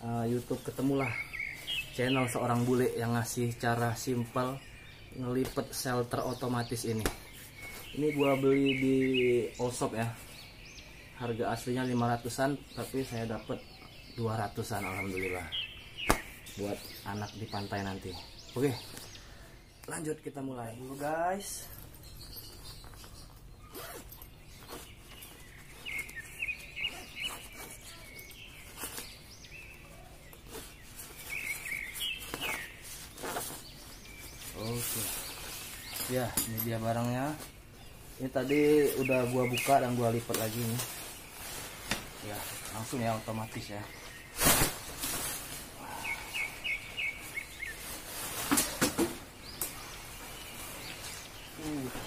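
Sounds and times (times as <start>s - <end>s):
birds chirping: 0.0s - 52.0s
nylon bag rustling: 20.8s - 52.0s.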